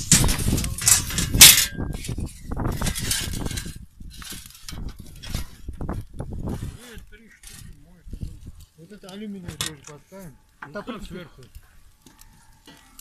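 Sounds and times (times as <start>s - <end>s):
metal sheets clinking and scraping: 0.0s - 7.8s, 9.2s - 10.8s.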